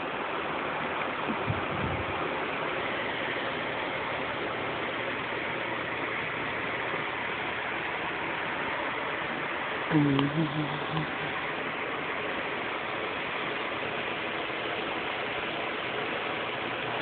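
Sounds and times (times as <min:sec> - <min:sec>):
box fan whooshing: 0:01.3 - 0:06.9.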